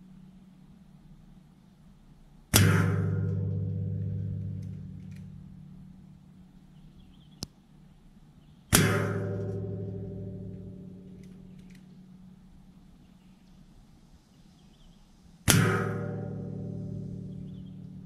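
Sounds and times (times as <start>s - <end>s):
sharp click: 4.4s - 5.3s, 11.1s - 12.0s.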